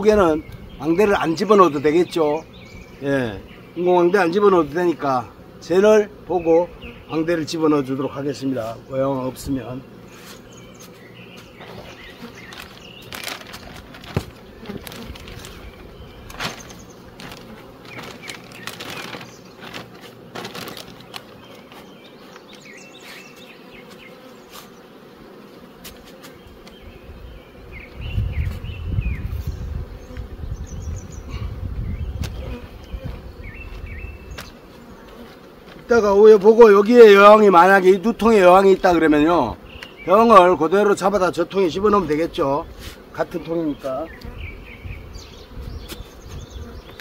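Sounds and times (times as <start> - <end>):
honeybees buzzing: 0.0 - 47.0
plastic sheet rustling: 11.6 - 21.9.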